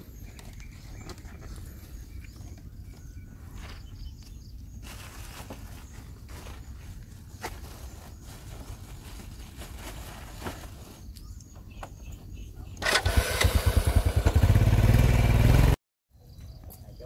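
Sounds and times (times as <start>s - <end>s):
small motorbike engine revving: 12.8s - 15.8s.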